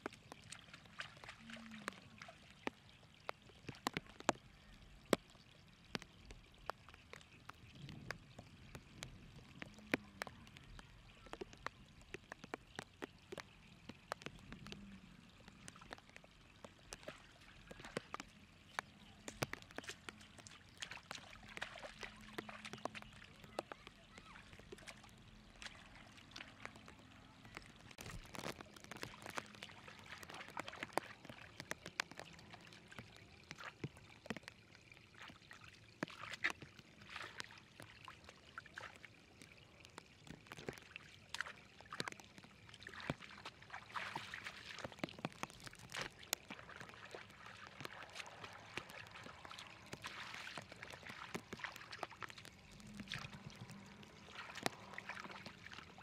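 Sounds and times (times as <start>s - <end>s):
muddy water running: 0.0s - 56.0s
hands splashing in water: 15.6s - 34.4s, 40.6s - 56.0s.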